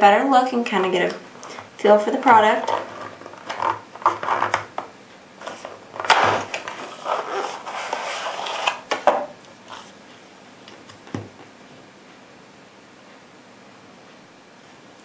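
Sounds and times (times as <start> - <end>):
cardboard rustling and scraping: 2.2 - 4.7, 5.4 - 10.0.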